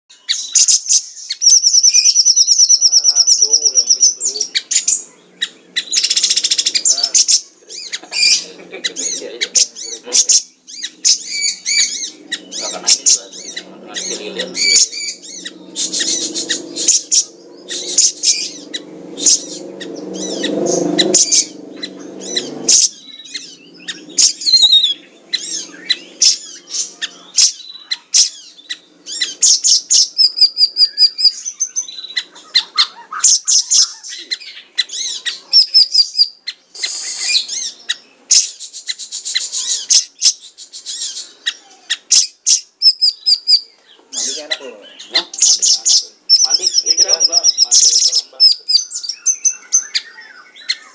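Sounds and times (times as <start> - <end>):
bird singing chirps and trills: 0.0 - 50.9
low drone hum: 6.7 - 27.4.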